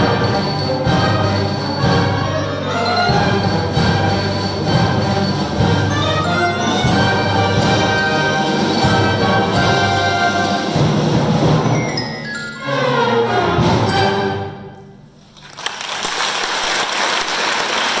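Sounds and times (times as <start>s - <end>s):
woodwind ensemble playing: 0.0s - 15.2s
audience applause: 15.4s - 18.0s.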